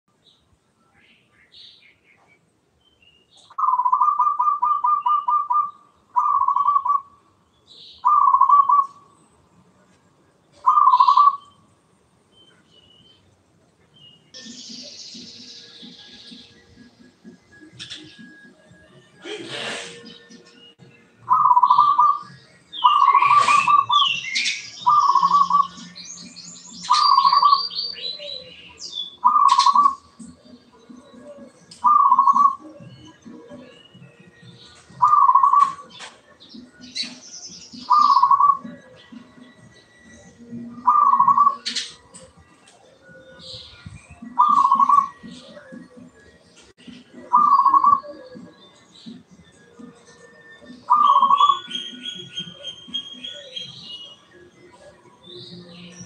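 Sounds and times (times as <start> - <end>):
sparrows chirping: 0.1 - 56.0
dove cooing: 3.6 - 7.2, 8.0 - 9.1, 10.6 - 11.5, 21.3 - 24.2, 24.8 - 25.9, 26.9 - 28.5, 29.2 - 33.7, 34.9 - 36.1, 37.8 - 39.5, 40.1 - 43.4, 44.2 - 46.2, 46.9 - 48.7, 49.7 - 51.8.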